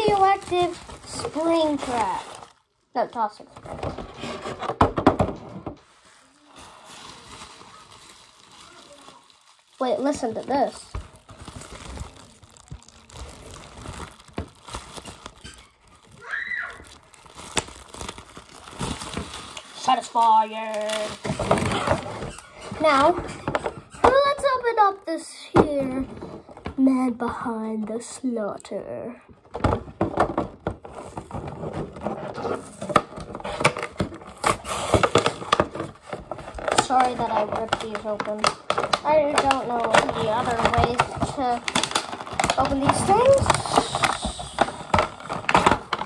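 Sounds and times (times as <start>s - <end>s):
plastic blister pack tearing: 0.0s - 3.3s, 6.4s - 23.1s, 30.9s - 46.0s
bubble wrap crinkling and popping: 0.0s - 4.0s, 5.8s - 24.8s, 29.5s - 46.0s.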